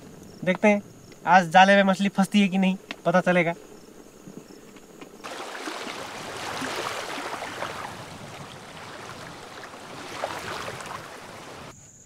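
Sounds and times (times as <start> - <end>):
crickets chirping: 0.0 - 12.0
stream water gurgling: 5.2 - 11.7.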